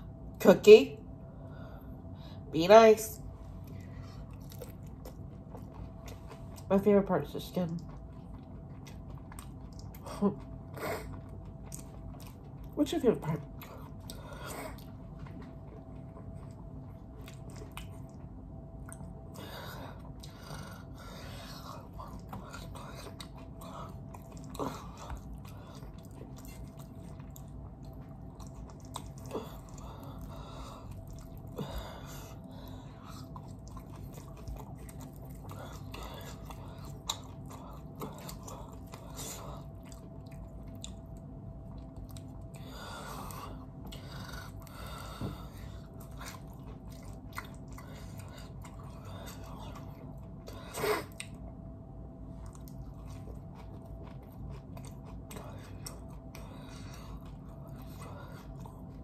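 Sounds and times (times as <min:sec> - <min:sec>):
steady low hum: 0:00.0 - 0:59.0
person chewing: 0:03.6 - 0:06.7, 0:07.8 - 0:12.7, 0:13.5 - 0:51.5, 0:52.3 - 0:59.0.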